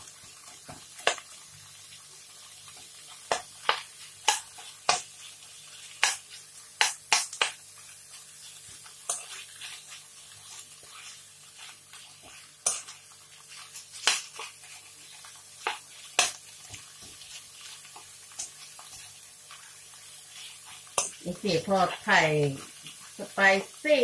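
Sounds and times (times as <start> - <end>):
frying sizzle: 0.0 - 24.0
metal spoon scraping a wok: 9.0 - 13.0.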